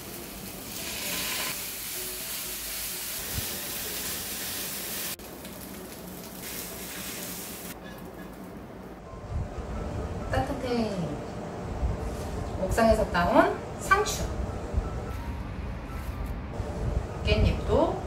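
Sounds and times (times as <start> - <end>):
chicken sizzling in a frying pan: 0.0 - 7.8.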